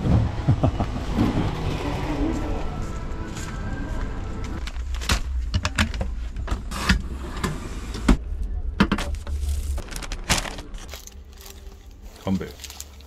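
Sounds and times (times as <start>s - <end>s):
straw mat rustling: 9.3s - 13.0s.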